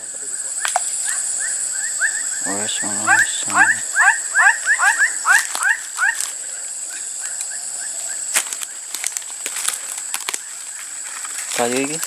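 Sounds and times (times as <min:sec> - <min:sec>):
animal chirping: 0:00.3 - 0:08.8
high-pitched drone: 0:01.3 - 0:06.7.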